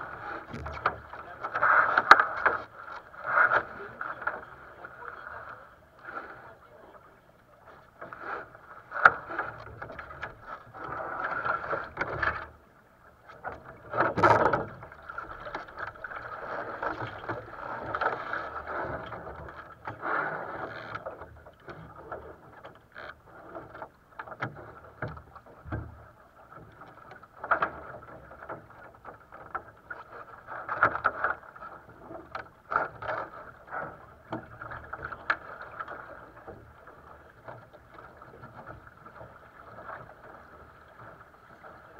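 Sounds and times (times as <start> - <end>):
water rushing along boat hull: 0.0 - 41.9
knocks on boat: 0.3 - 2.6, 13.9 - 14.9, 24.3 - 26.0.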